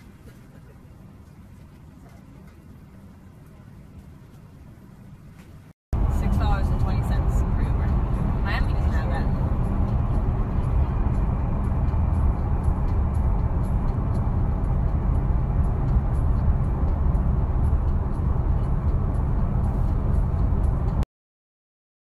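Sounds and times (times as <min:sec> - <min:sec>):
low rumbling noise: 0:06.0 - 0:21.0.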